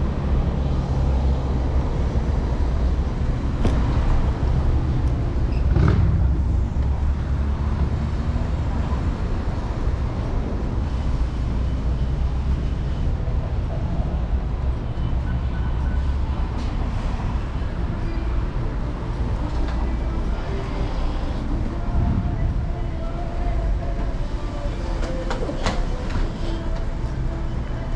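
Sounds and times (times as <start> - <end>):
city street traffic: 0.0 - 27.9
road noise rumble: 0.0 - 27.9
wind on microphone: 21.8 - 22.9.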